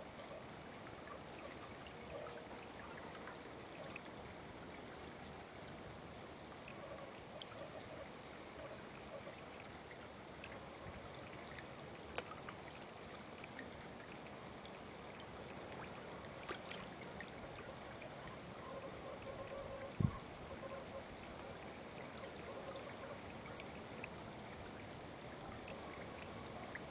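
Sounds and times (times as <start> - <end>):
water pouring and trickling: 0.0 - 26.9
fish splashing at surface: 16.4 - 17.0.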